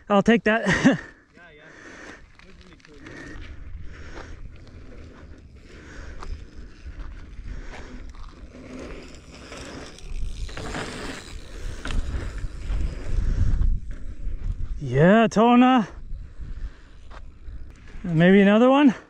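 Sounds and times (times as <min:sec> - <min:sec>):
scuffs on dry dirt: 0:01.3 - 0:14.9
wind rumbling on microphone: 0:02.5 - 0:15.0, 0:15.9 - 0:18.2.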